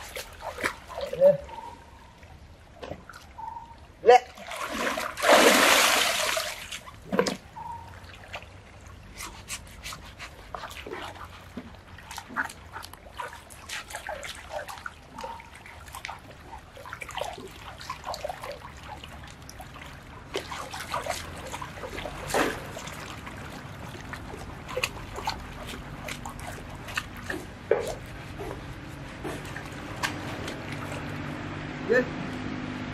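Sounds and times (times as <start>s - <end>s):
river water splashing: 0.0s - 32.9s
scrubbing with a husk: 9.0s - 18.8s, 20.3s - 31.6s.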